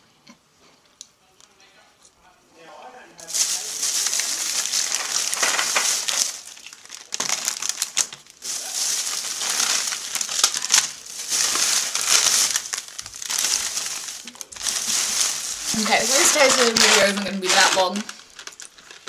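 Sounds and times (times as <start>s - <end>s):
candy packaging crinkling: 3.2s - 19.0s.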